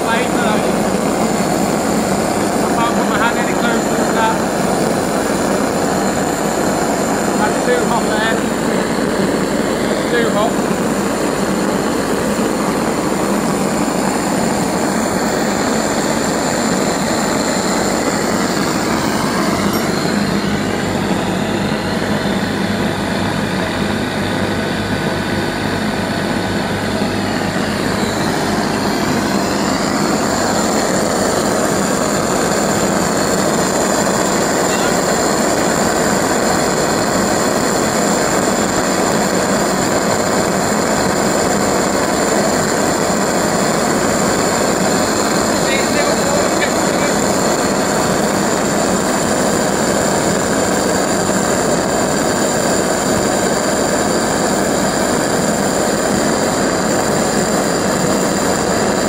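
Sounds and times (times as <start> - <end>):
pulse jet engine rushing roar: 0.0 - 59.0
high resonant tone: 19.6 - 21.2.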